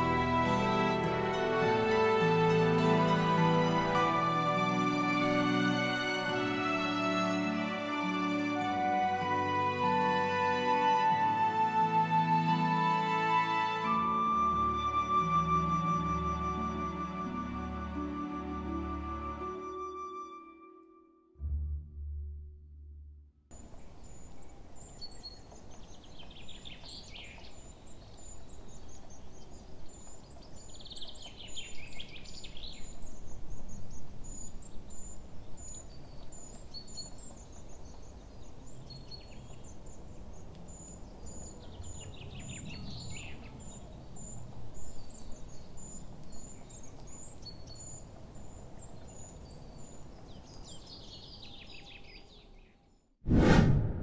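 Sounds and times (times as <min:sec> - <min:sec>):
low background noise: 0:23.5 - 0:52.6
birds chirping: 0:23.6 - 0:52.9
bird song phrase: 0:23.6 - 0:53.0.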